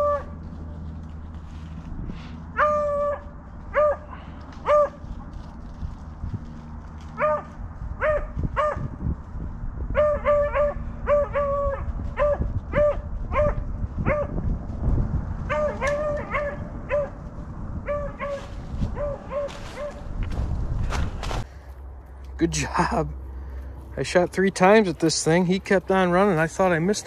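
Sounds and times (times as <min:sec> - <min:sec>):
dog barking: 0:07.2 - 0:08.9, 0:10.0 - 0:14.4, 0:15.5 - 0:17.2, 0:19.0 - 0:20.0.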